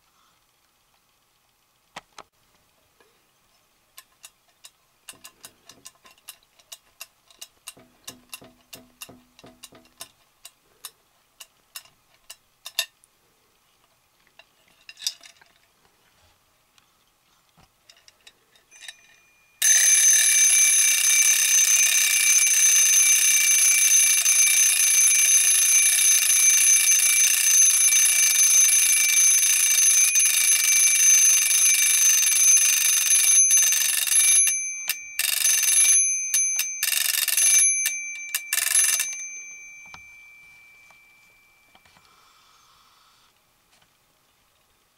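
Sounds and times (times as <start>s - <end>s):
alarm clock bells ringing: 18.7s - 41.9s.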